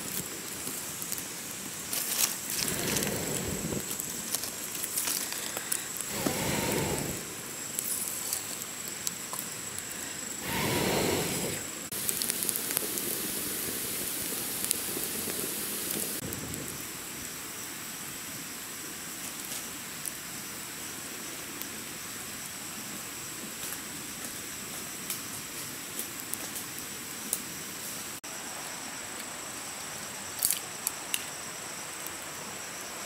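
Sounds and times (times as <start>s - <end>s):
small fire pops: 0.0s - 17.3s, 23.4s - 27.5s, 30.3s - 31.4s
wood fire crackling and hissing: 0.0s - 33.0s
short rush of noise: 6.1s - 7.4s, 10.4s - 11.7s.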